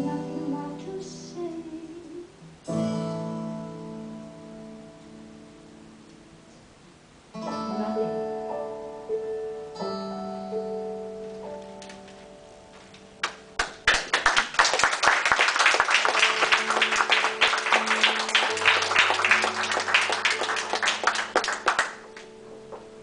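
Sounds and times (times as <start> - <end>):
piano accompaniment: 7.4 - 14.4, 15.2 - 23.0
audience applauding: 13.2 - 22.8.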